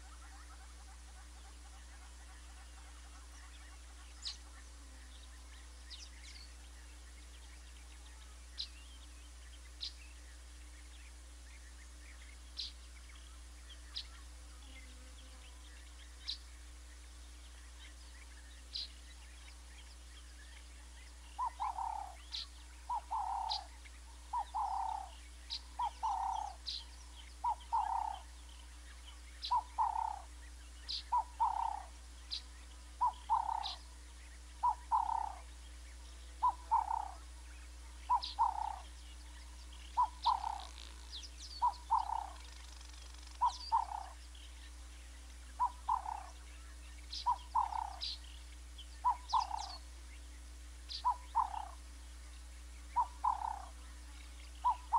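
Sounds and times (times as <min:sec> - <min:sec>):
frog calling: 0:21.3 - 0:28.4, 0:29.4 - 0:35.6, 0:36.3 - 0:37.4, 0:38.0 - 0:44.3, 0:45.5 - 0:48.3, 0:49.0 - 0:49.9, 0:50.9 - 0:51.9, 0:52.9 - 0:54.9
high bird chirps: 0:24.3 - 0:26.8, 0:38.1 - 0:38.9, 0:39.7 - 0:44.2, 0:45.5 - 0:48.3, 0:48.9 - 0:49.8, 0:50.9 - 0:51.8, 0:52.9 - 0:53.8, 0:54.4 - 0:54.9.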